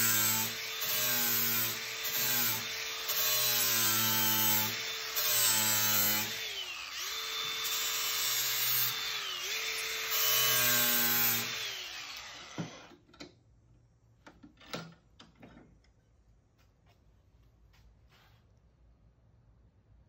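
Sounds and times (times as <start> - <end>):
angle grinder grinding steel: 0.0 - 13.0.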